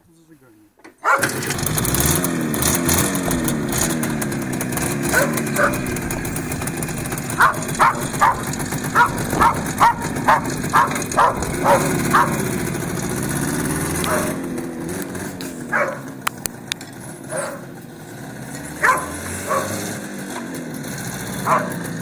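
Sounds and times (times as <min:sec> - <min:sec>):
dog barking: 0:01.0 - 0:01.4, 0:05.1 - 0:05.9, 0:07.4 - 0:12.4, 0:14.0 - 0:14.4, 0:15.7 - 0:16.1, 0:17.3 - 0:17.7, 0:18.8 - 0:19.8, 0:21.4 - 0:21.8
two-stroke motorcycle engine revving: 0:01.1 - 0:22.0.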